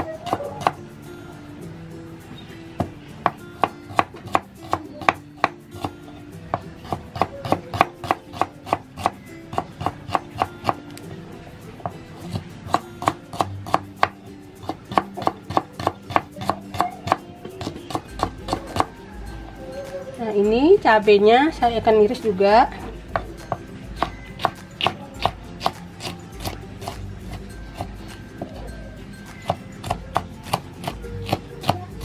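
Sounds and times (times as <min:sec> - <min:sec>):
knife chopping on wooden board: 0:02.8 - 0:10.8, 0:11.8 - 0:18.9, 0:23.1 - 0:28.6, 0:29.3 - 0:32.0.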